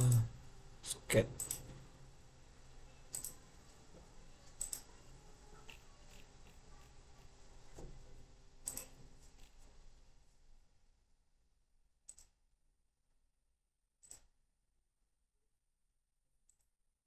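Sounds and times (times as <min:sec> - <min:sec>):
faint room noise: 0:00.0 - 0:13.3
computer mouse clicks: 0:03.1 - 0:03.4, 0:04.5 - 0:04.9, 0:05.6 - 0:07.3, 0:08.6 - 0:09.6, 0:12.1 - 0:12.4, 0:16.5 - 0:16.7.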